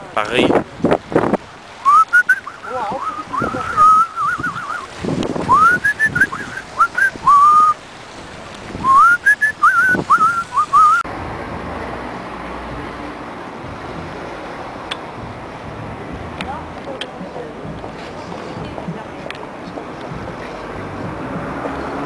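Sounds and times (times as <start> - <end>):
person whistling a tune: 1.8 - 4.9, 5.5 - 7.8, 8.8 - 11.0.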